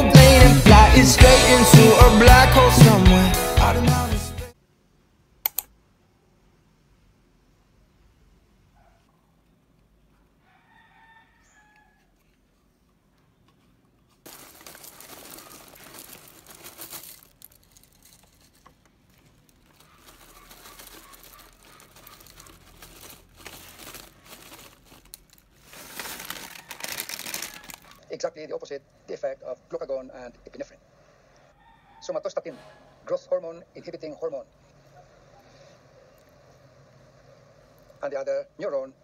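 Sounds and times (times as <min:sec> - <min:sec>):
plastic bag crinkling: 0:14.2 - 0:28.0
flakes pouring into a ceramic bowl: 0:14.3 - 0:18.5.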